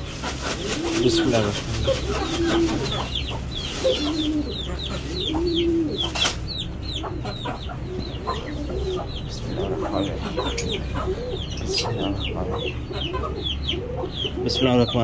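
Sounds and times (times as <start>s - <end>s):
sharp rustle: 0.0s - 5.1s
chickens clucking: 0.0s - 15.0s.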